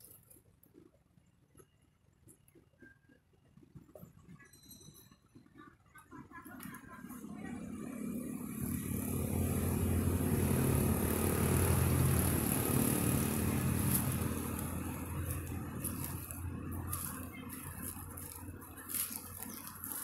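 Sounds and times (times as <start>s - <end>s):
vehicle engine passing by: 7.0s - 20.0s.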